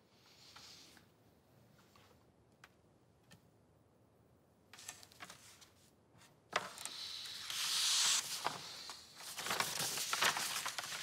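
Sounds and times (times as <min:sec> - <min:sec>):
paper rustling and crackling: 0:06.5 - 0:11.0.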